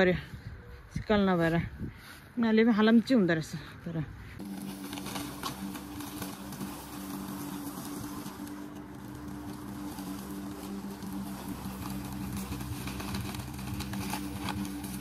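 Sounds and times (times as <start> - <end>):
lawn mower running: 4.4 - 15.0.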